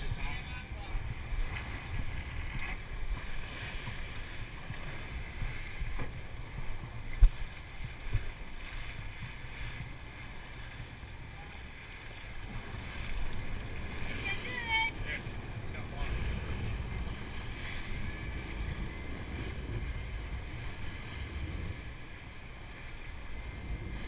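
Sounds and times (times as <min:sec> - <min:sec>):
boat engine rumble: 0:00.0 - 0:24.0
wind buffeting microphone: 0:00.0 - 0:24.0.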